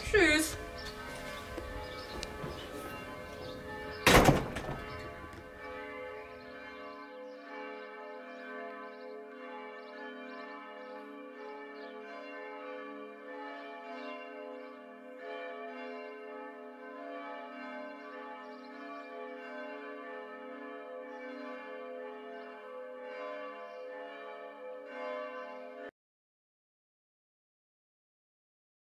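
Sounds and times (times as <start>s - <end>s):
church bells ringing: 0.0s - 25.9s.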